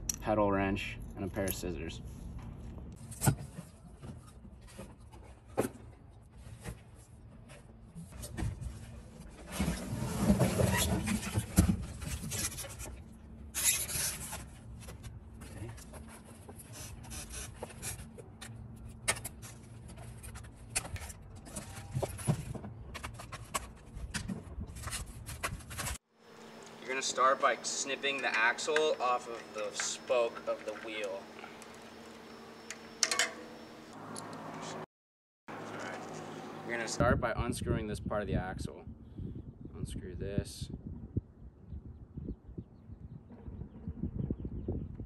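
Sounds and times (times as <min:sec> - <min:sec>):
steady low hum: 0:25.3 - 0:34.9.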